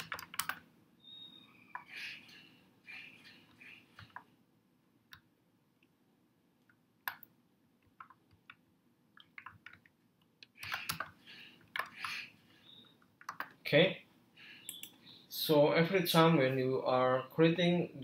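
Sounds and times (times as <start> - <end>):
computer keyboard typing: 0.0 - 0.6, 7.0 - 8.6, 9.2 - 9.9, 10.5 - 12.3, 13.2 - 13.6.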